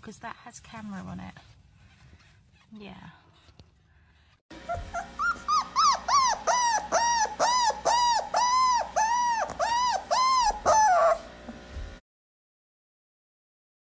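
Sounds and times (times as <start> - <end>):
puppy whining: 4.5 - 11.7.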